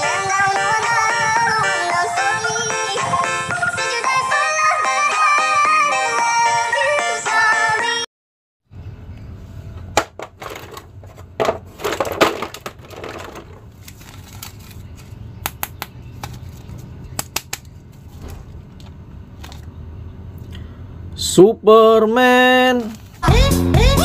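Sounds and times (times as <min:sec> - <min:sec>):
plastic crinkling: 0:11.6 - 0:15.2.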